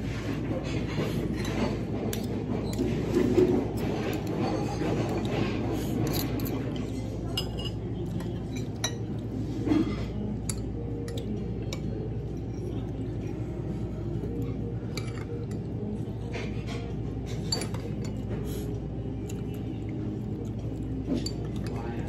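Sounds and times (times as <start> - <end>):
low background hum: 0.0 - 22.0
cutlery clinking on a plate: 0.7 - 11.9, 16.3 - 18.5.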